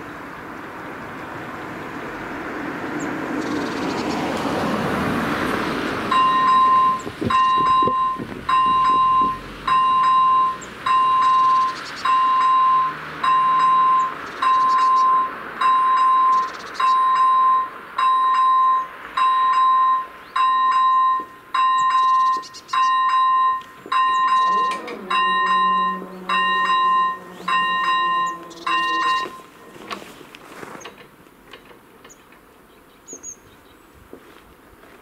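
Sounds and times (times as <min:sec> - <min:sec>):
level crossing bell beeping: 0:06.1 - 0:30.0.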